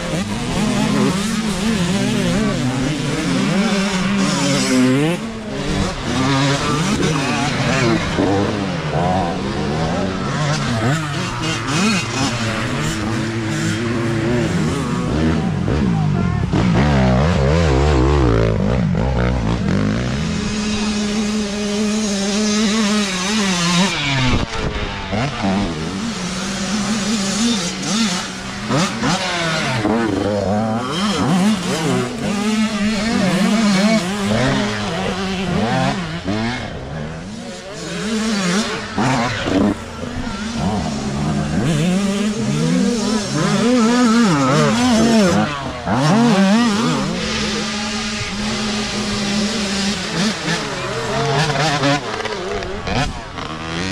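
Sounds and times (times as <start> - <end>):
dirt bike engines revving: 0.0 - 53.9.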